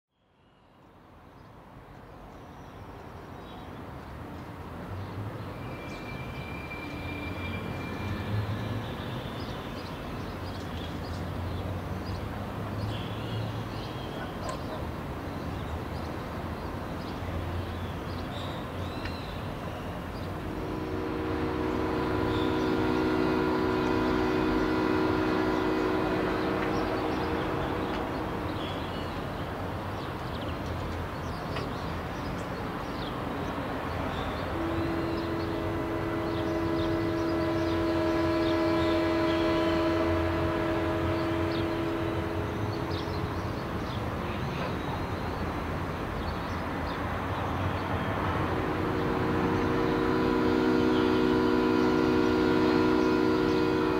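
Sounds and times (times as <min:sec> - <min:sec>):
birds chirping: 0:16.8 - 0:53.9
long low horn note: 0:20.2 - 0:29.6, 0:34.4 - 0:45.0, 0:47.9 - 0:53.9.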